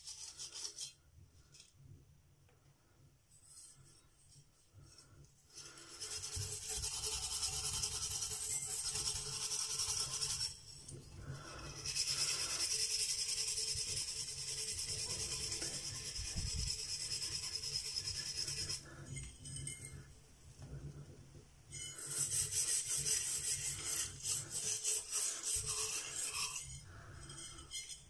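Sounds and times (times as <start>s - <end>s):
scouring pad scrubbing metal: 21.8s - 28.0s.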